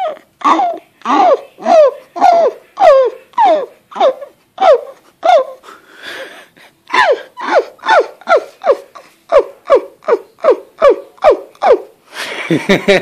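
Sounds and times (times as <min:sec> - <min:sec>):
person laughing hard: 0:05.2 - 0:08.9, 0:12.2 - 0:13.0
gasping wheezy breath: 0:05.6 - 0:07.4.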